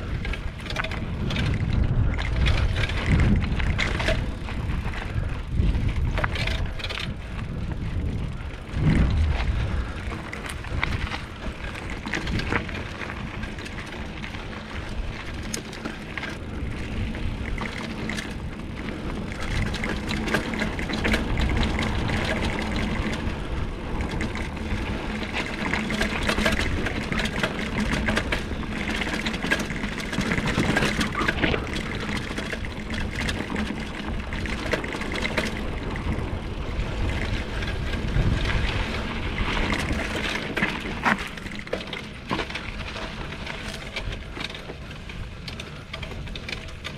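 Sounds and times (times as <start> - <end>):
bike rattling and clicking: 0.0 - 46.9
tyres on dirt and gravel: 0.0 - 46.9
wind rumble on microphone: 0.0 - 46.9.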